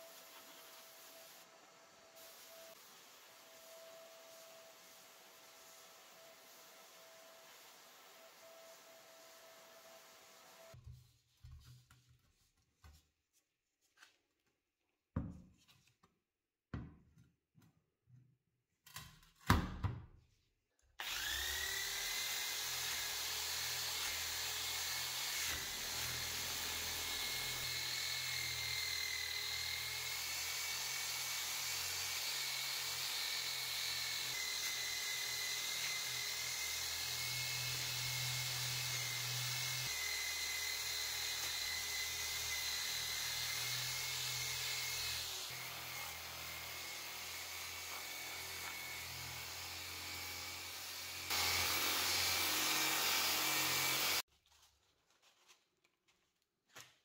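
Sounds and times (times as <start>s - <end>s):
power sander whining: 21.0s - 30.1s, 33.2s - 54.2s.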